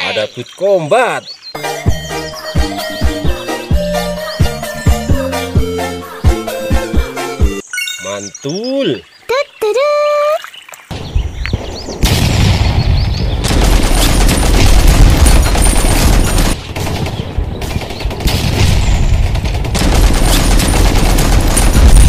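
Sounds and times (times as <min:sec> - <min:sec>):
machine gun automatic fire: 0:13.4 - 0:22.0.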